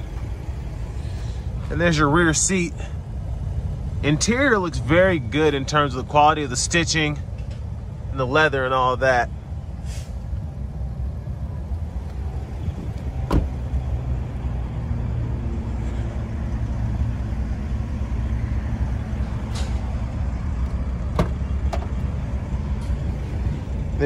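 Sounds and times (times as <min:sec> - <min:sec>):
car door shutting: 0:12.9 - 0:13.8, 0:21.1 - 0:22.0
trunk latch clicks: 0:13.3 - 0:13.6.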